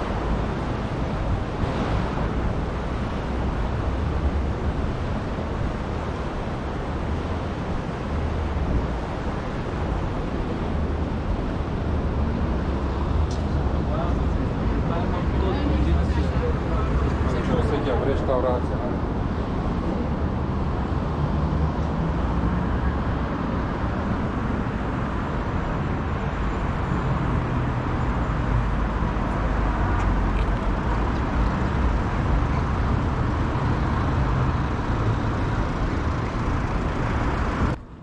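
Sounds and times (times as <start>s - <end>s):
cars driving past: 0.0s - 38.0s.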